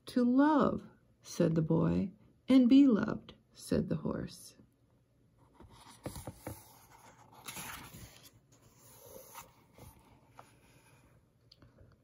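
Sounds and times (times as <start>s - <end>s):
book page turning: 5.5s - 11.2s
paper sliding and rustling: 5.6s - 11.2s.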